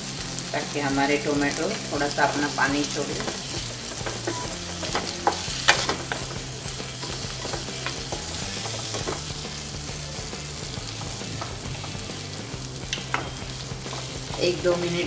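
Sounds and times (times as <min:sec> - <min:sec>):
vegetables sizzling in hot oil: 0:00.0 - 0:15.0
spatula knocking and scraping pan: 0:02.0 - 0:14.7.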